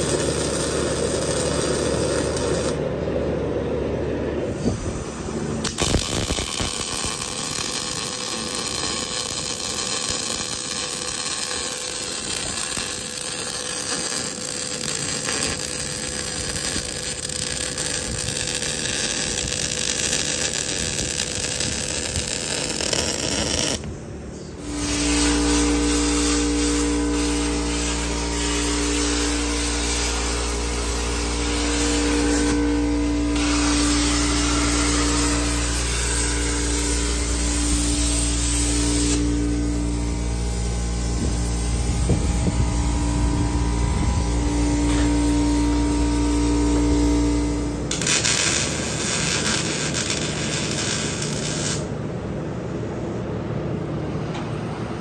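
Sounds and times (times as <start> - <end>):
machine low drone: 0.0 - 55.0
power tool motor running: 24.6 - 51.9.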